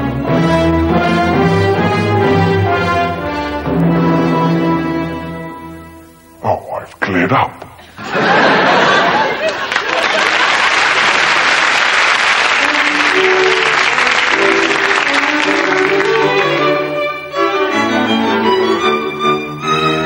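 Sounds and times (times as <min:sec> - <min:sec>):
orchestral string music: 0:00.0 - 0:06.6, 0:12.2 - 0:20.0
audience applause: 0:08.3 - 0:17.1.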